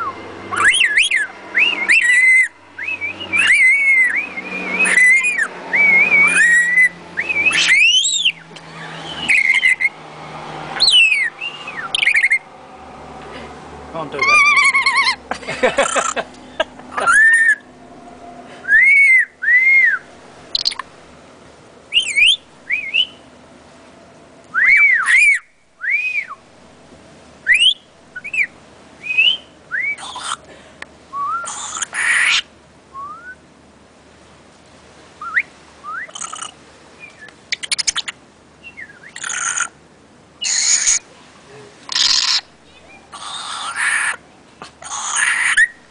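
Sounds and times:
parrot whistling calls: 0.0 - 10.0, 10.8 - 12.5, 14.2 - 16.2, 17.0 - 17.7, 18.6 - 20.8, 21.9 - 23.2, 24.5 - 26.4, 27.4 - 30.4, 31.1 - 33.4, 35.2 - 39.8, 40.4 - 41.0, 41.9 - 44.2, 44.8 - 45.8
parrot harsh screeches: 1.9 - 2.6, 3.3 - 9.9, 10.8 - 12.4, 14.2 - 15.2, 17.0 - 17.6, 30.0 - 30.4, 31.4 - 32.5, 39.1 - 39.7, 40.4 - 41.0, 41.9 - 42.5, 43.1 - 44.2, 44.8 - 45.8.

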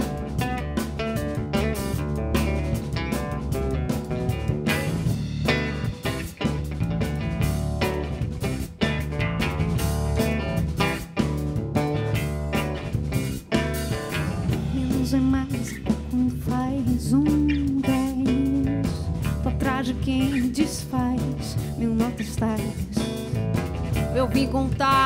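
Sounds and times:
drums: 0.0 - 25.0
electric guitar: 0.0 - 25.0
woman singing: 14.5 - 23.3, 24.1 - 25.0.

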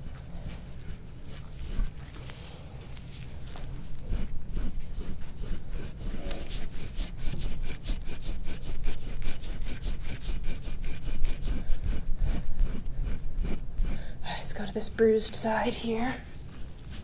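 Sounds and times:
metal tool scraping skin: 3.5 - 14.0.

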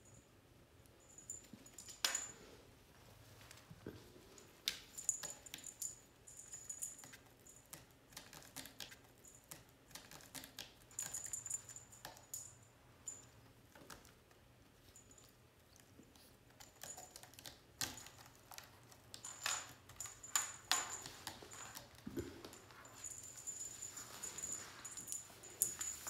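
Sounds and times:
faint high ringing: 0.0 - 2.8, 11.0 - 13.6, 19.3 - 26.0.

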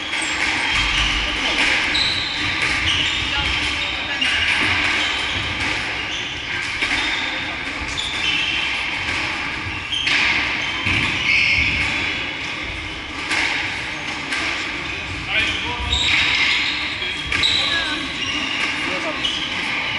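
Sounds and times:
shoe squeaks: 0.0 - 13.1, 14.8 - 19.9
squash ball knocks echoing: 0.0 - 14.8.

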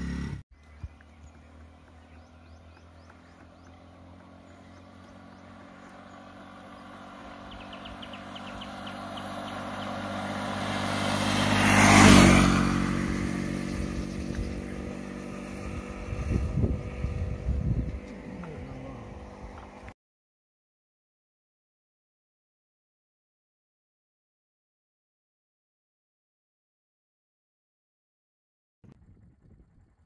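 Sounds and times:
motorcycle passing by: 0.0 - 20.0.

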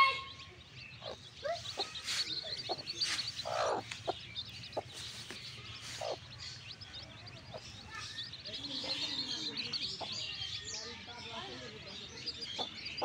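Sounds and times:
chicks peeping: 0.0 - 13.0
hen clucking: 0.9 - 7.9.

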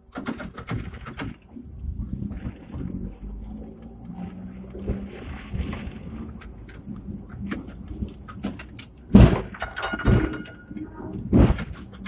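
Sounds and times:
tram body rattling: 4.7 - 12.0.

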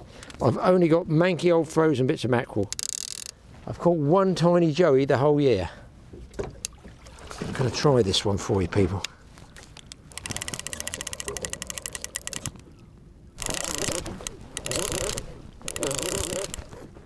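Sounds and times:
reel handling noise: 2.6 - 3.4, 9.0 - 12.8, 13.4 - 17.0
fishing reel clicking: 2.7 - 3.4, 9.9 - 12.6, 13.4 - 16.9.

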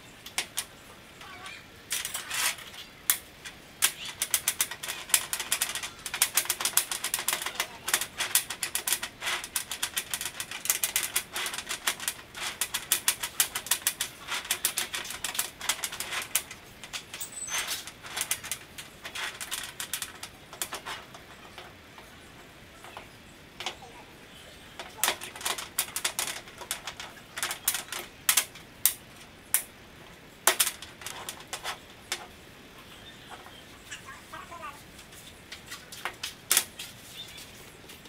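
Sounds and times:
bolts and nuts clinking: 1.9 - 22.2, 24.8 - 29.7.

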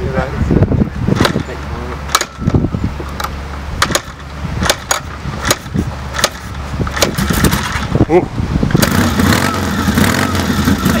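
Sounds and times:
motorcycle kick-start clacks: 3.2 - 7.9.

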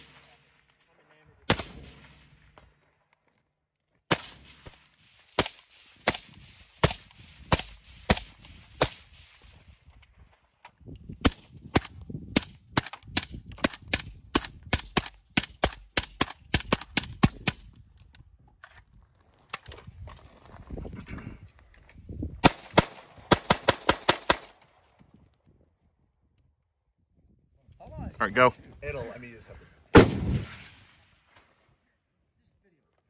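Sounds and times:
suppressed rifle gunshots: 1.5 - 2.6, 4.1 - 9.4, 29.9 - 31.1.

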